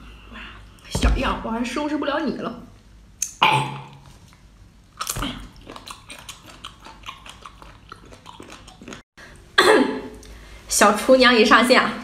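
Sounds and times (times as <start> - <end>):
sea cucumber being bitten: 3.2 - 9.0
chewing clicks and smacks: 5.0 - 9.0.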